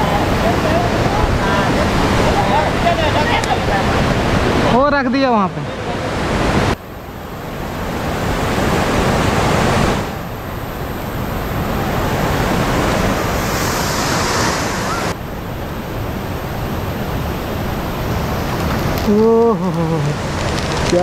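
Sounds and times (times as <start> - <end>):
loud rushing noise: 11.5 - 15.4.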